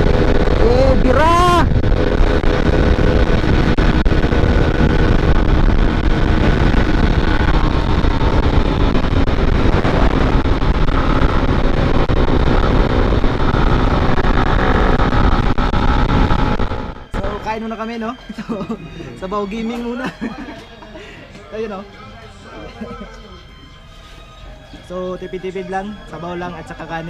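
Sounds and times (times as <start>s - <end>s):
small motorcycle engine running: 0.0s - 1.1s, 1.7s - 17.4s
wind noise on microphone: 0.0s - 17.5s.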